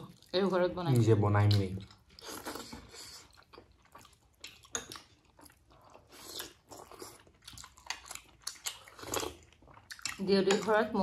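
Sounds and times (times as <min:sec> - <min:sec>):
person chewing wetly: 0:00.0 - 0:11.0.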